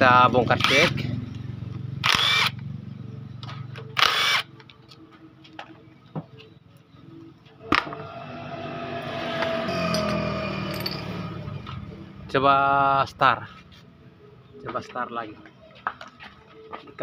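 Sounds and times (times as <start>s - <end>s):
power driver spinning: 2.0s - 2.6s, 4.0s - 4.5s.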